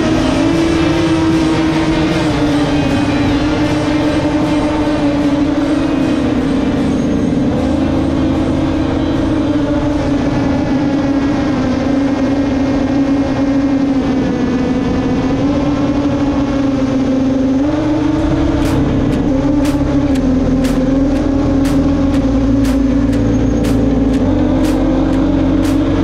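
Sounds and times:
drone motors whining: 0:00.0 - 0:26.0
sharp high ticks: 0:18.2 - 0:26.0.

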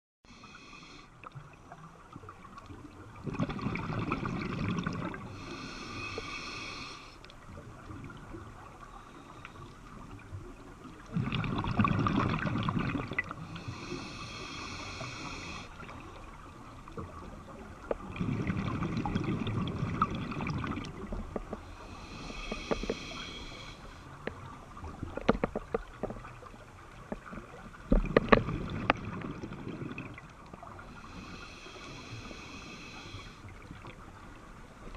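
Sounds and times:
regulator hissing inhale: 0:00.3 - 0:01.2, 0:05.2 - 0:07.2, 0:13.4 - 0:15.9, 0:21.6 - 0:24.2, 0:30.8 - 0:33.8
diver exhaling bubbles: 0:03.2 - 0:05.7, 0:11.1 - 0:14.1, 0:18.0 - 0:21.1.

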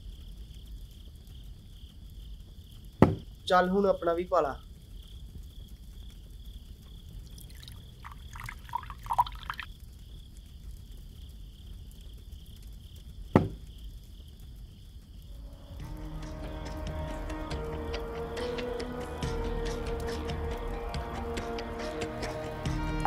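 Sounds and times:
crickets chirring: 0:00.0 - 0:23.0
liquor gurgling into glass: 0:07.4 - 0:09.7.

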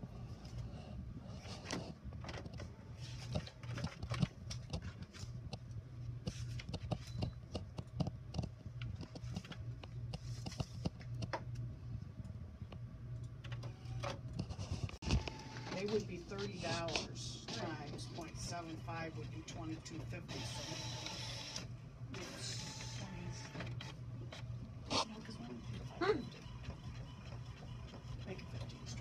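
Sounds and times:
inkjet printer printing: 0:13.4 - 0:29.0.

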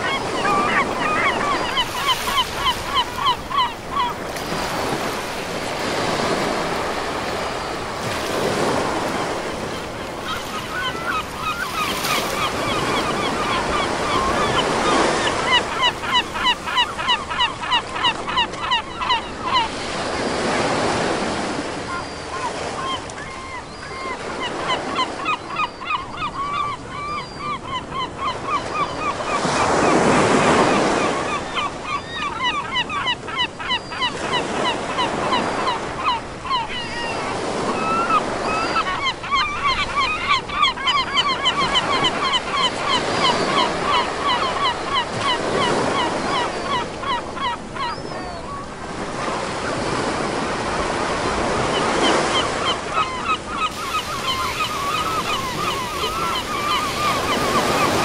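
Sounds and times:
gulls calling: 0:00.0 - 0:58.0
surf breaking: 0:53.4 - 0:58.0.

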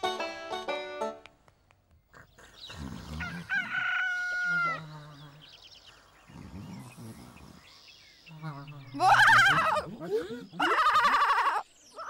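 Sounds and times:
rooster crowing: 0:03.2 - 0:04.8.

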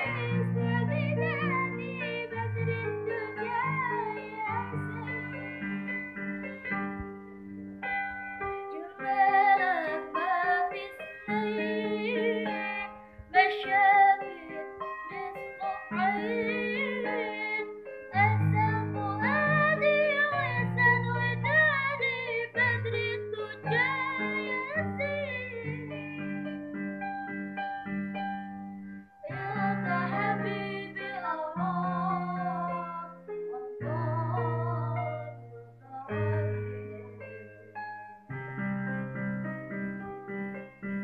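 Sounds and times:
women singing: 0:00.0 - 0:05.8, 0:08.7 - 0:25.8, 0:29.3 - 0:37.6
electronic keyboard chords: 0:00.0 - 0:41.0.

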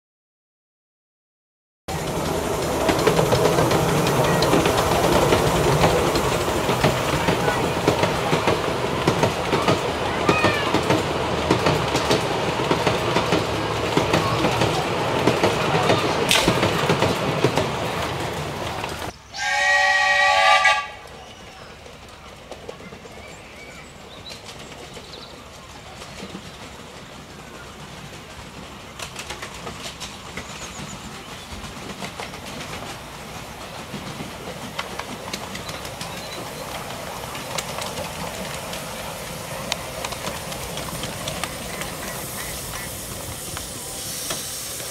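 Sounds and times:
train wheels rattling on track: 0:01.9 - 0:44.9
locomotive whistle: 0:19.3 - 0:21.5.

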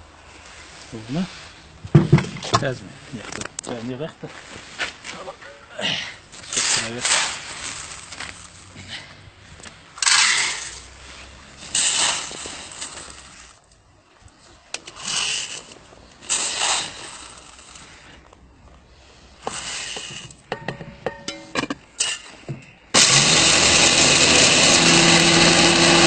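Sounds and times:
metal lid clinking: 0:20.5 - 0:21.8.

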